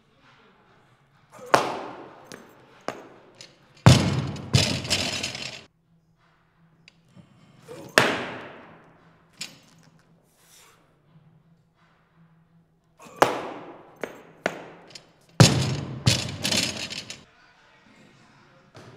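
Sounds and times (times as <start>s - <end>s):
metal clanks ringing: 1.8s - 5.6s, 14.1s - 17.2s
barbell thudding on platform: 3.8s - 5.6s, 13.2s - 17.2s.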